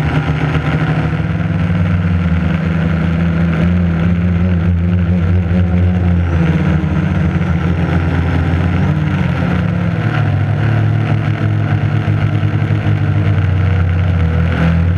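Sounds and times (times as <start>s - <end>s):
quadcopter propellers buzzing: 0.0s - 14.9s.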